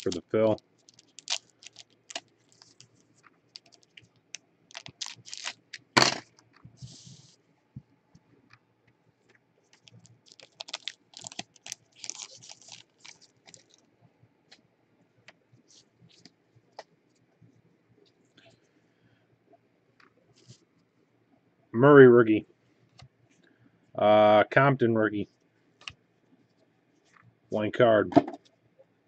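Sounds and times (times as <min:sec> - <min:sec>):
cards being handled: 0:00.0 - 0:04.1, 0:04.7 - 0:06.0, 0:09.7 - 0:13.7
wrapper tearing and crinkling: 0:00.0 - 0:06.0, 0:09.8 - 0:13.8.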